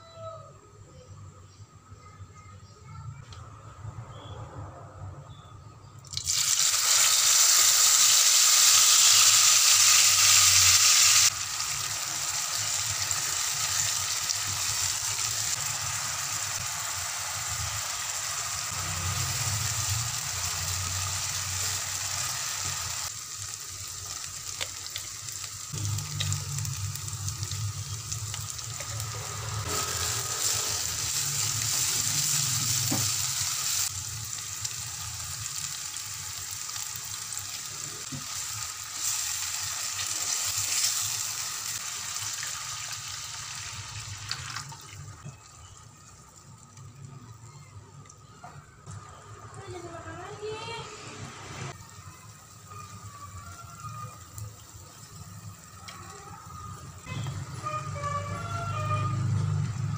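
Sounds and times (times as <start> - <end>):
paste sizzling in hot oil: 6.1 - 46.4.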